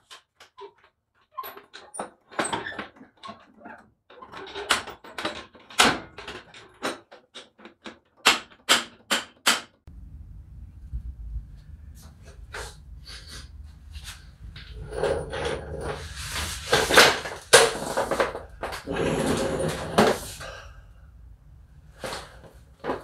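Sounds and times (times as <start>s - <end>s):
steady low hum: 9.9s - 22.9s.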